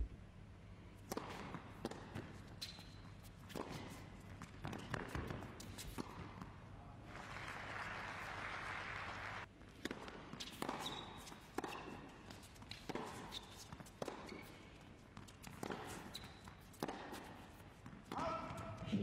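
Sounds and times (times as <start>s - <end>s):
shoe squeak on hard court: 2.4s - 4.0s, 10.4s - 17.3s
audience applause: 7.1s - 9.5s
rackets striking tennis ball: 9.7s - 18.8s.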